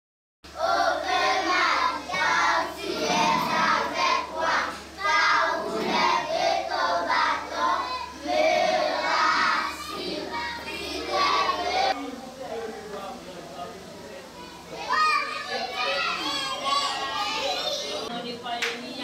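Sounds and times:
girls singing in unison: 0.5 - 12.0.

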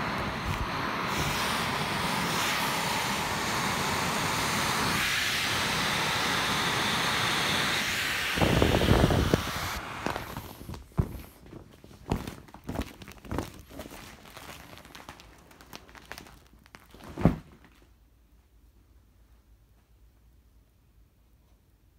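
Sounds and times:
air hissing from valve: 0.0 - 10.6
vinyl rustling and crinkling: 9.9 - 18.5.

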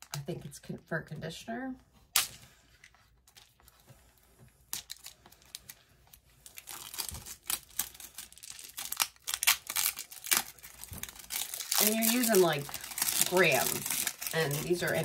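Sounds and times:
packaging crinkling and tearing: 4.7 - 15.0.

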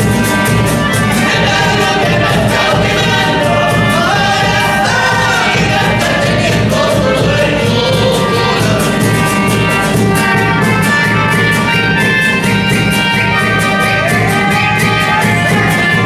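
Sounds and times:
accordion: 0.0 - 16.0
bass drum beating: 0.0 - 16.0
strummed guitars: 0.0 - 16.0
men singing together: 1.0 - 10.3.

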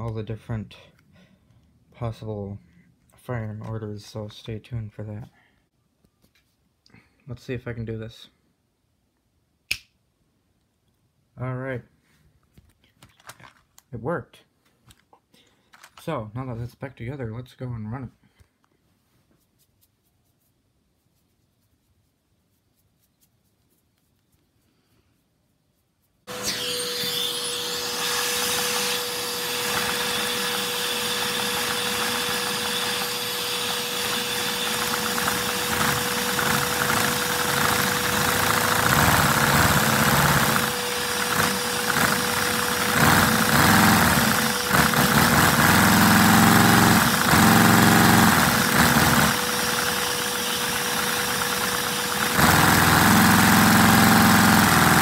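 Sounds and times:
vacuum-driven toy engine whine: 26.3 - 55.0.

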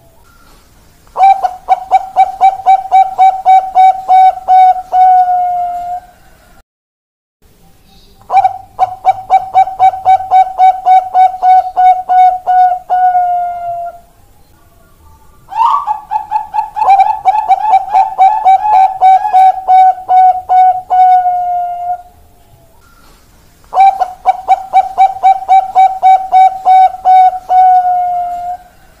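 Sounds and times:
dove cooing: 1.2 - 6.2, 8.3 - 14.1, 15.5 - 22.2, 23.7 - 28.9.

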